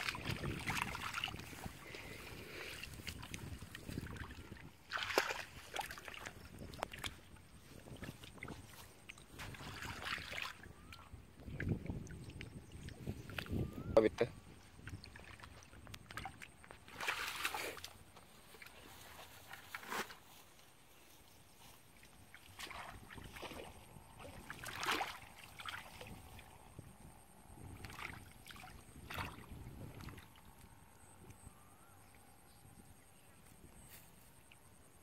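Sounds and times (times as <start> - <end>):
muddy water splashing: 0.0 - 13.8, 14.6 - 20.3, 22.0 - 26.6, 27.6 - 30.7.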